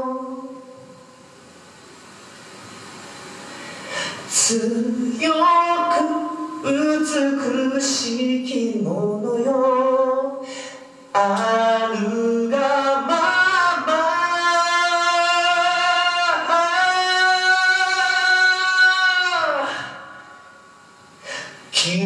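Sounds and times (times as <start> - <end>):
man singing into microphone: 4.3 - 10.5, 11.2 - 20.1, 21.7 - 22.0.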